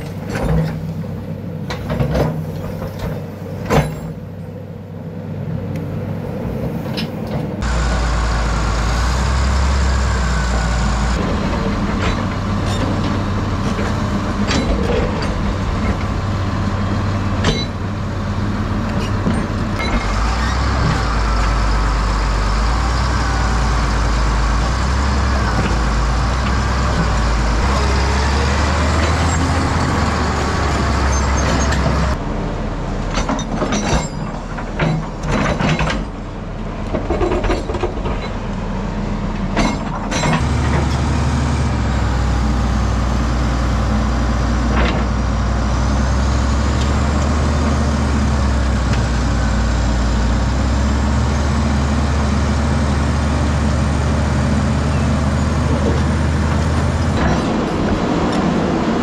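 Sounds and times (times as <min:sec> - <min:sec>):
excavator bucket clanking: 0:00.0 - 0:01.0, 0:01.6 - 0:04.3, 0:11.2 - 0:16.2, 0:33.0 - 0:38.5, 0:39.4 - 0:41.1, 0:55.6 - 0:58.6
heavy diesel engines under load: 0:00.0 - 0:59.0.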